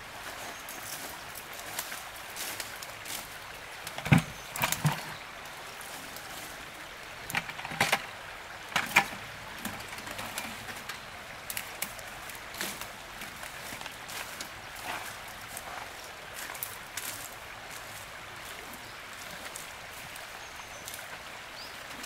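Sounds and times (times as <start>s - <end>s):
running water: 0.0s - 22.0s
splashes and knocks in water: 3.9s - 5.2s.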